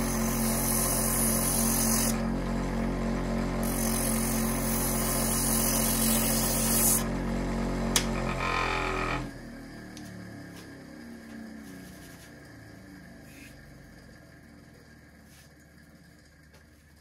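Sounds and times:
bench motor running: 0:00.0 - 0:10.1.

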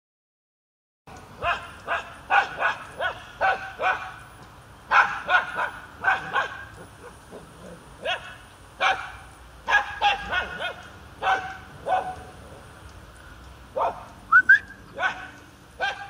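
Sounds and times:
small dog barking: 0:01.4 - 0:04.2, 0:04.9 - 0:12.3, 0:13.8 - 0:14.1, 0:14.9 - 0:16.0.

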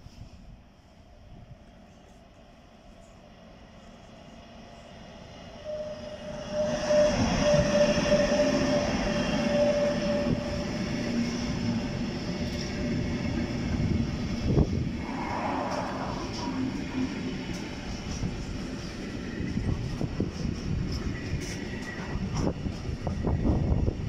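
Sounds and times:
freight train rolling rumble: 0:00.2 - 0:24.0
locomotive high tone: 0:05.3 - 0:14.0.

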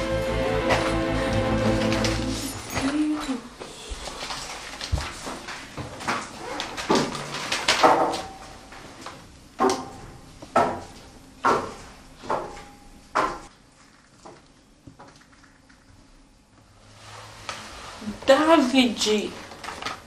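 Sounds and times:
paper rustling: 0:01.6 - 0:03.2, 0:04.0 - 0:07.8, 0:19.4 - 0:20.0.

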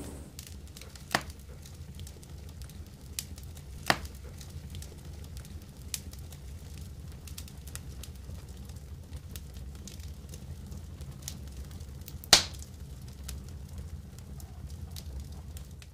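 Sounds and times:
low rumble: 0:00.0 - 0:00.4
wood fire crackling: 0:00.0 - 0:15.9
loud sharp snap: 0:12.3 - 0:12.6.

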